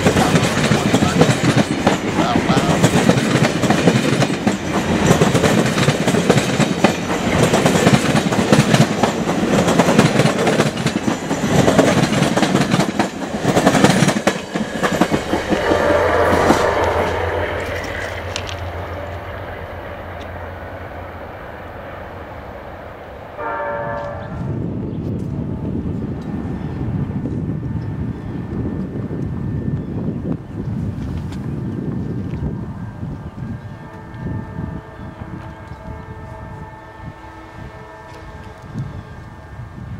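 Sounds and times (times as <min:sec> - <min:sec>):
train wheels clattering over rail joints: 0:00.0 - 0:19.2.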